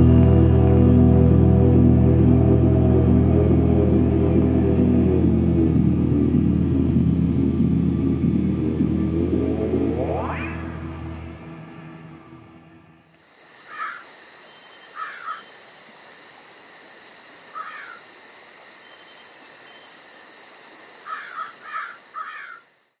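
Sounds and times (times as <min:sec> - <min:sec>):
insects chirring: 0:12.9 - 0:23.0
crows cawing: 0:13.7 - 0:14.1, 0:15.0 - 0:15.5, 0:17.5 - 0:18.1, 0:21.0 - 0:22.7.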